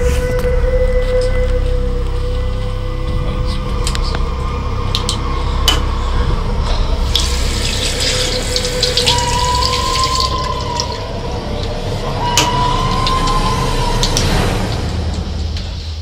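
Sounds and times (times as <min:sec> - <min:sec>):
low drone with held tones: 0:00.0 - 0:16.0.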